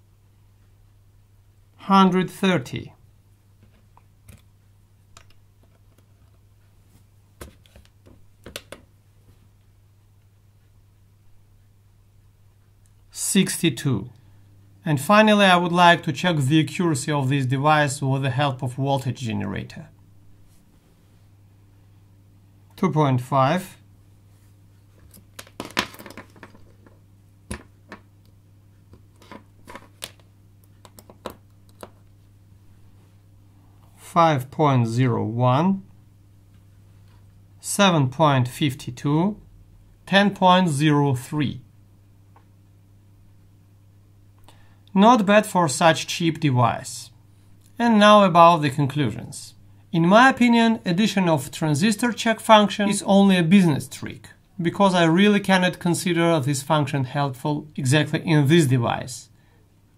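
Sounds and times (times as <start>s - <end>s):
steady low hum: 0.0s - 59.9s
test leads clicking and tapping: 25.3s - 32.0s.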